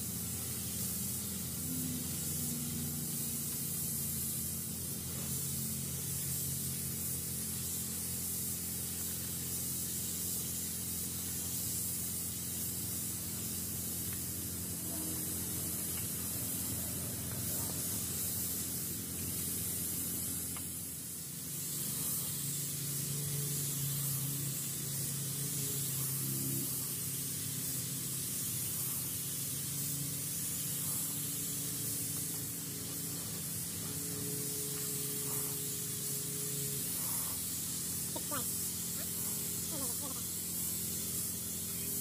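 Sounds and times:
paint spray gun hissing: 0:00.0 - 0:42.0
low steady hum: 0:00.6 - 0:04.5.

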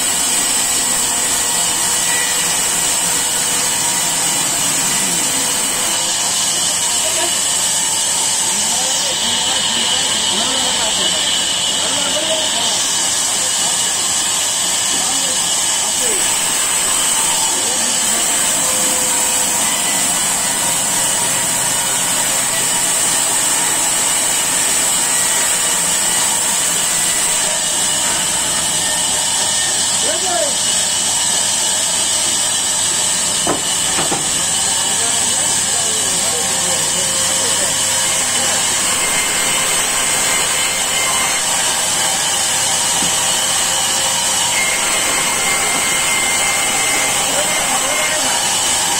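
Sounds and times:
band saw cutting log: 0:00.0 - 0:48.9
high saw whine: 0:00.0 - 0:48.9.

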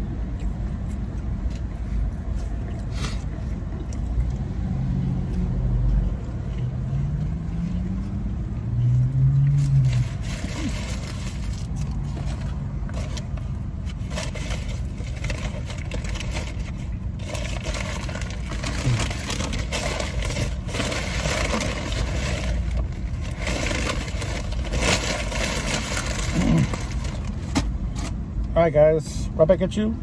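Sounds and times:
car engine rumble from inside: 0:00.0 - 0:30.0
packaging crinkling and scraping: 0:09.5 - 0:28.2.

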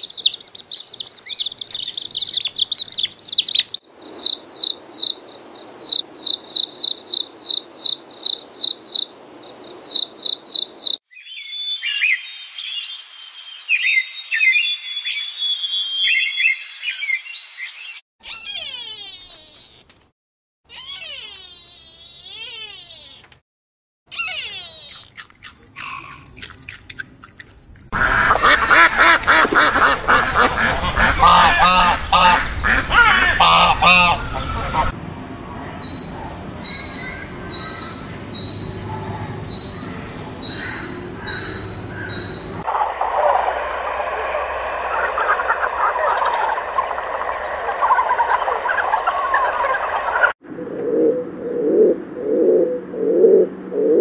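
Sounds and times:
wavering animal call: 0:18.2 - 0:19.8, 0:20.7 - 0:23.3, 0:24.1 - 0:25.2
ducks quacking loudly: 0:28.0 - 0:35.0, 0:39.1 - 0:50.3.

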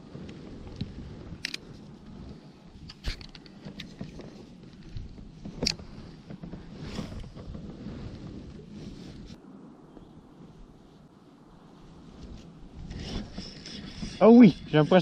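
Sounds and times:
small ticks of reel: 0:12.4 - 0:15.0.

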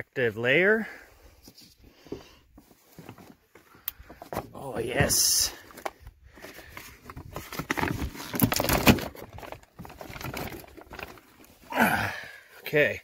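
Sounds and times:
plastic sheet crinkling and tearing: 0:07.2 - 0:11.6.

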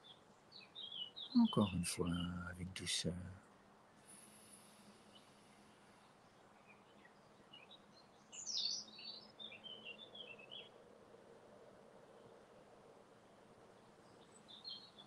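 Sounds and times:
songbird chirping: 0:00.0 - 0:03.5, 0:04.6 - 0:10.8, 0:13.5 - 0:15.0
faint background hiss: 0:00.0 - 0:15.0.

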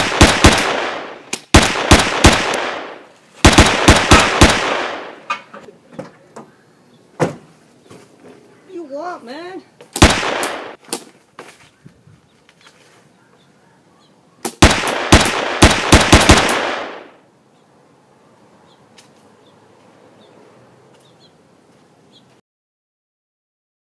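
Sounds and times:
gunshots with echo: 0:00.0 - 0:05.2, 0:10.0 - 0:10.8, 0:14.6 - 0:17.2.

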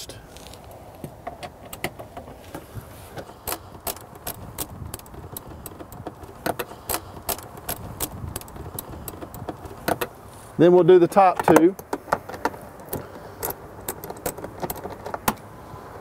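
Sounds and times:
ratchet wrench clicking: 0:03.2 - 0:10.1.

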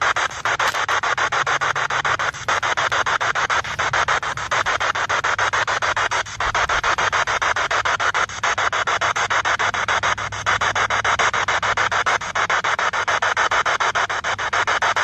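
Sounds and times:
pulsing radio static: 0:00.0 - 0:15.0.

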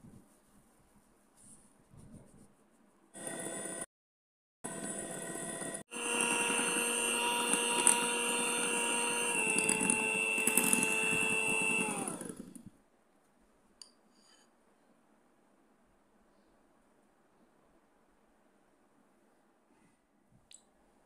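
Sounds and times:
electric hand mixer running: 0:03.2 - 0:03.9, 0:04.7 - 0:12.6.

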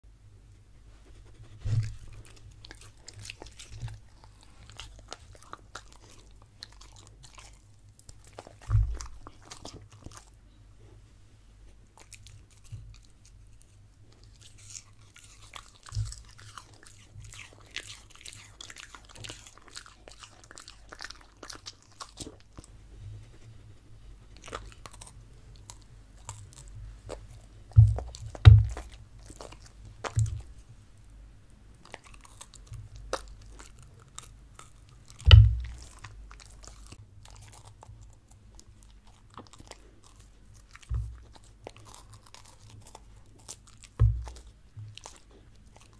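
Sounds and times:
dog crunching and chewing: 0:01.0 - 0:10.9, 0:11.7 - 0:45.9
heavy low thumps: 0:35.3 - 0:35.9.

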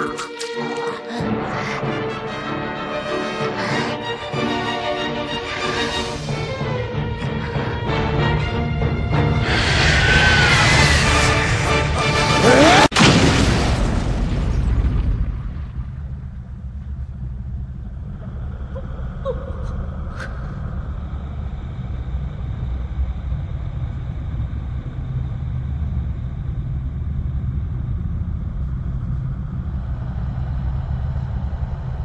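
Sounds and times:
low steady rumble: 0:13.6 - 0:32.0.

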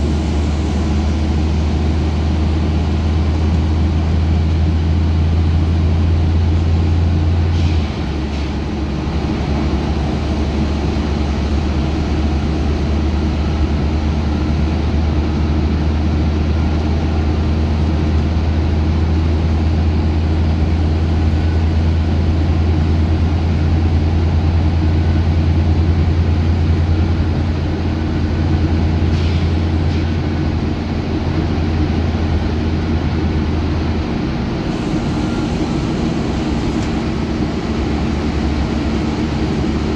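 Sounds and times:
bus diesel engine drone: 0:00.0 - 0:39.9
road noise: 0:00.0 - 0:39.9.

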